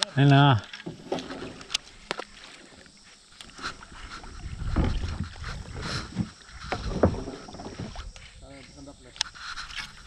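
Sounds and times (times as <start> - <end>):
low rumbling knocks: 4.6 - 8.0.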